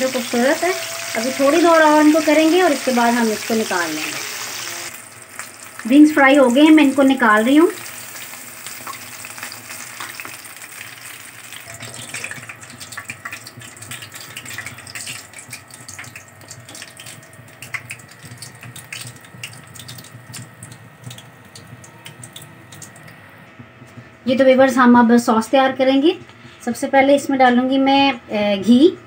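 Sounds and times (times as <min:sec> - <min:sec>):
chicken deep-frying in oil: 0:00.0 - 0:23.3.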